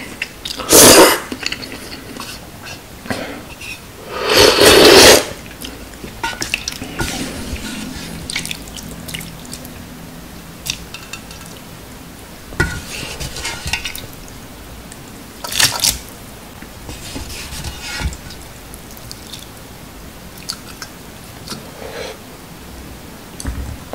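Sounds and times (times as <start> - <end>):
broth dripping and splashing: 5.5 - 11.8, 12.6 - 21.0.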